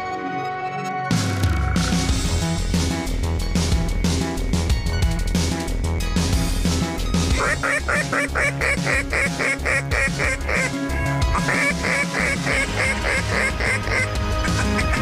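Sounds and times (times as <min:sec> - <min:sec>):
background music: 0:00.0 - 0:15.0
duck quacking: 0:07.3 - 0:15.0.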